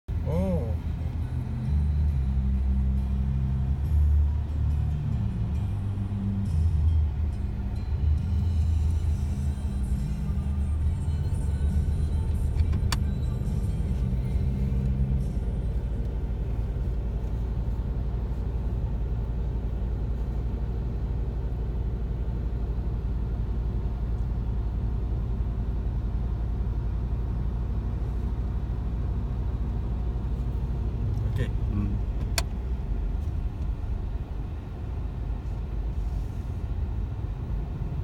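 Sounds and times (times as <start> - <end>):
car cabin rumble: 0.1 - 38.0
background music: 0.2 - 17.2.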